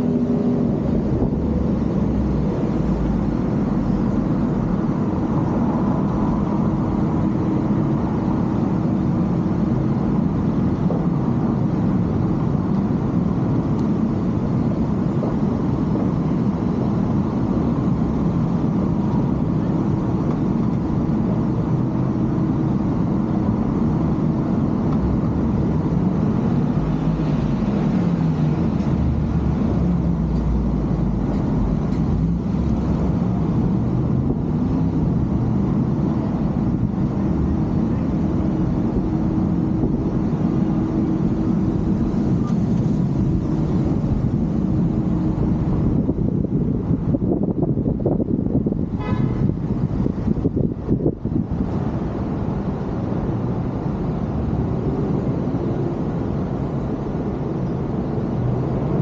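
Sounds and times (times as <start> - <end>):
car road noise: 0.0 - 59.0.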